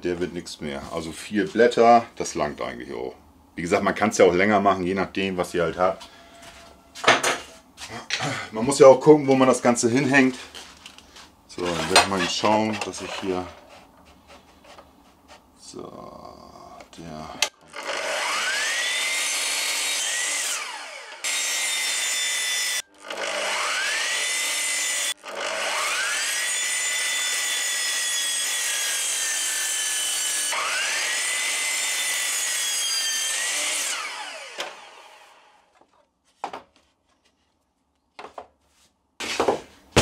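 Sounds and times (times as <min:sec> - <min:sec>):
mitre saw cutting wood: 0:11.6 - 0:15.4, 0:17.5 - 0:35.8.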